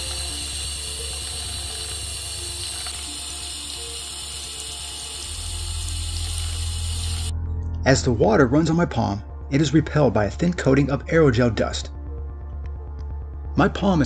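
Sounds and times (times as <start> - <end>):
tap water running: 0.0 - 7.3
soft background music: 0.0 - 14.0.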